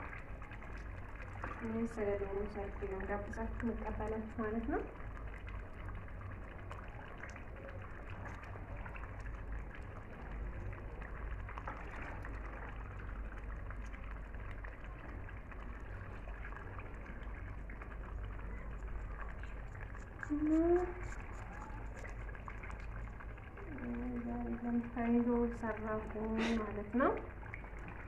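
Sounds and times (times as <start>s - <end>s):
low hum and hiss: 0.0s - 28.0s
water dripping and splashing: 0.0s - 28.0s.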